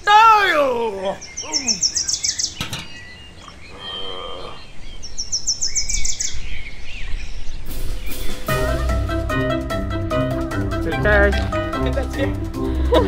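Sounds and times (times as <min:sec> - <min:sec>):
birds chirping in high trills: 0:00.0 - 0:08.8.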